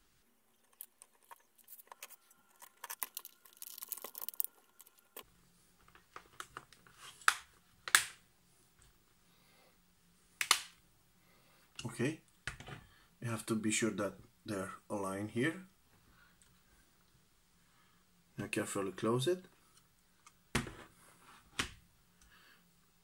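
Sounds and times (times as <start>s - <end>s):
plastic film peeling: 0.6s - 5.2s.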